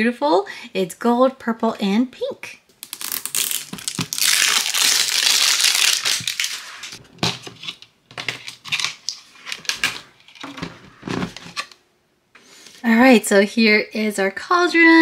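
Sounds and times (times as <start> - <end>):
plastic film crinkling: 2.8 - 10.5.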